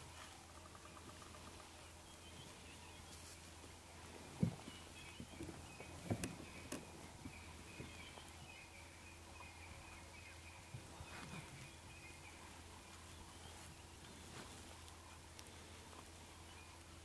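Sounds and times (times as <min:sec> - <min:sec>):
steady low hum: 0:00.0 - 0:17.0
faint high chirping: 0:04.4 - 0:17.0.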